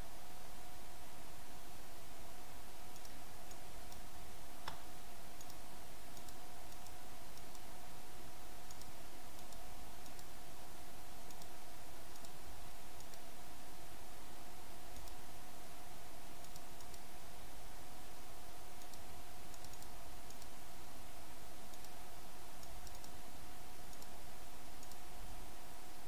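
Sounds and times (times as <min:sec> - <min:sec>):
thin steady hum: 0:00.0 - 0:26.0
computer mouse clicks: 0:02.9 - 0:04.0, 0:04.6 - 0:07.7, 0:08.6 - 0:10.3, 0:11.2 - 0:12.4, 0:13.0 - 0:13.3, 0:14.9 - 0:15.2, 0:16.4 - 0:17.1, 0:18.8 - 0:20.6, 0:21.7 - 0:22.0, 0:22.6 - 0:23.2, 0:23.9 - 0:24.2, 0:24.8 - 0:25.1.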